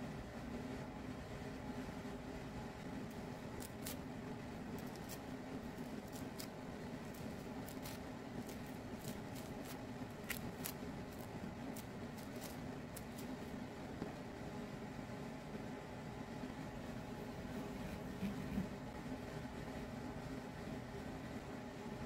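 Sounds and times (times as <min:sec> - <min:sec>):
low steady hum: 0:00.0 - 0:22.0
fruit rind crackling and tearing: 0:03.1 - 0:13.6.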